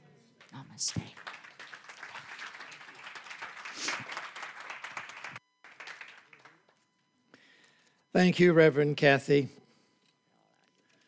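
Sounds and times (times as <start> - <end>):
congregation applauding: 0.9 - 6.8.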